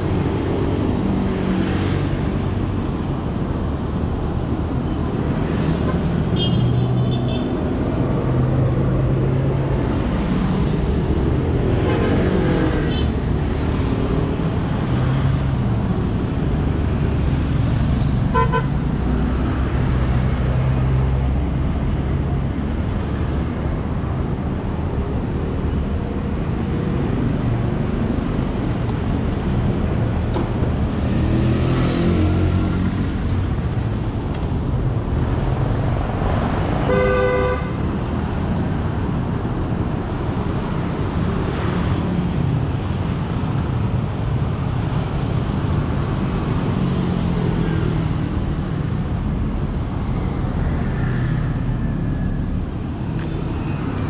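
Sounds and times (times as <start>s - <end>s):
city street traffic: 0.0s - 54.0s
vehicles passing close: 0.0s - 54.0s
vehicle horn honking: 36.9s - 37.8s.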